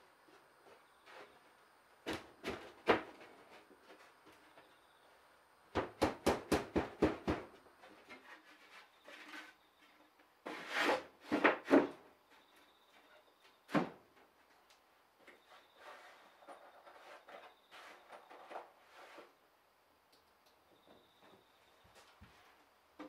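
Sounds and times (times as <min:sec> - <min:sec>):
knocks on wood: 0:05.7 - 0:07.6.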